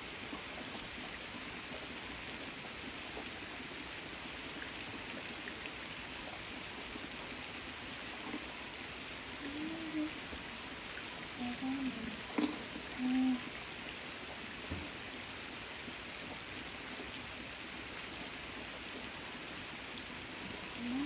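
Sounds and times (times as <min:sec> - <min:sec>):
rain falling on leaves: 0:00.0 - 0:21.0.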